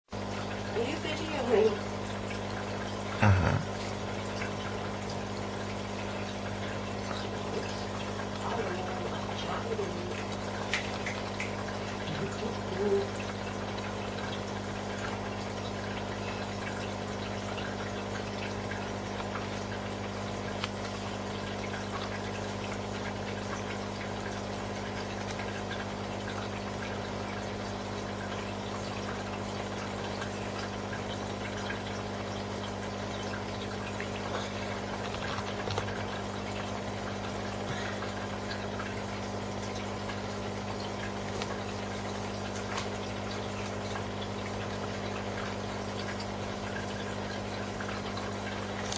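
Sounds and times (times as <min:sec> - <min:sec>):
water pump humming: 0:00.1 - 0:48.9
water trickling and splashing: 0:00.1 - 0:48.9.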